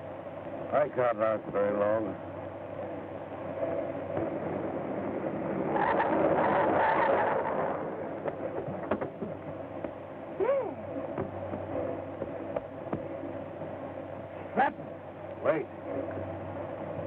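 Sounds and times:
film soundtrack hiss: 0.0s - 17.0s
sliding tone: 3.6s - 8.9s.

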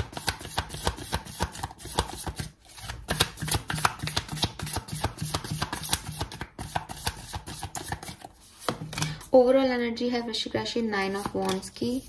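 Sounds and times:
cards being shuffled: 0.1s - 9.3s.

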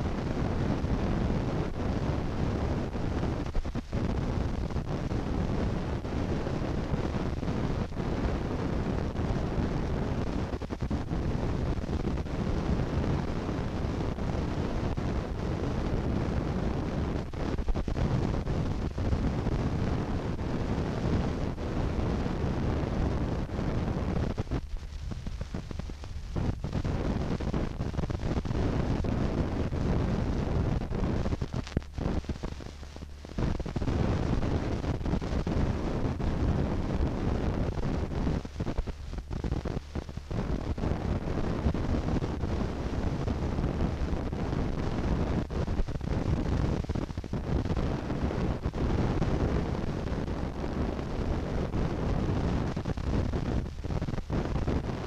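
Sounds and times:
low rumbling noise: 0.0s - 55.0s.

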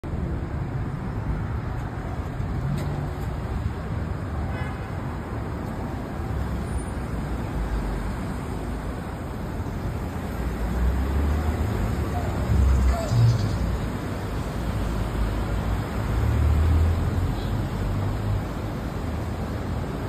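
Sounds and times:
city traffic rumble: 0.0s - 20.0s.

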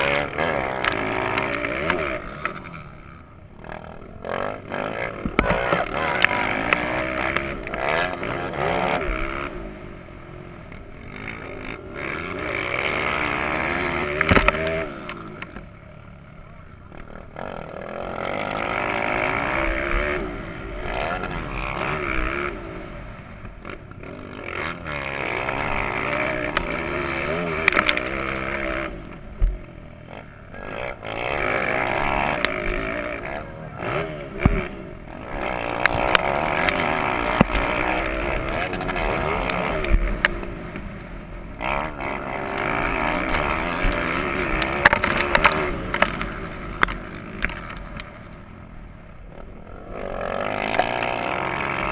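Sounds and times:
motorbike engine revving: 0.0s - 51.9s.

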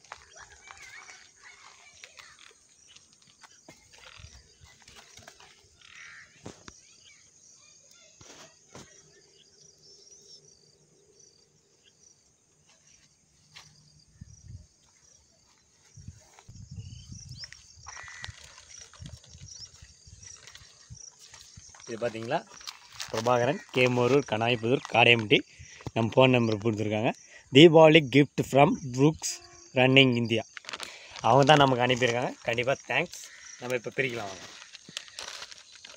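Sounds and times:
footsteps on grass: 0.0s - 6.6s, 12.5s - 25.0s, 30.6s - 35.9s
insects trilling: 0.0s - 35.9s.

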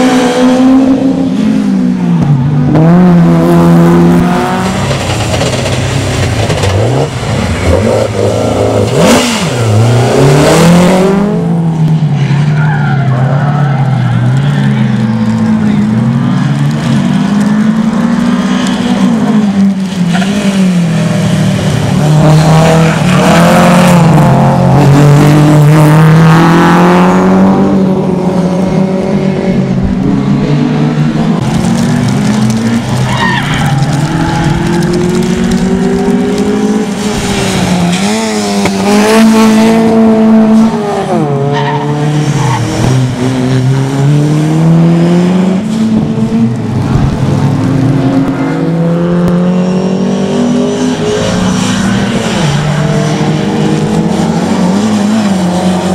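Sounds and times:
rally car engines revving: 0.0s - 55.9s
tyre squeal: 33.0s - 34.6s.

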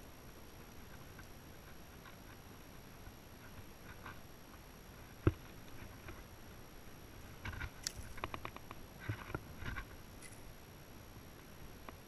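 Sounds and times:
fish flapping knocks and clicks: 7.4s - 9.9s.

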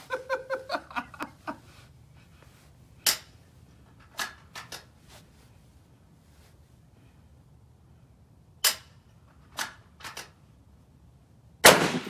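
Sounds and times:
rifle shot with echo: 11.6s - 12.0s.

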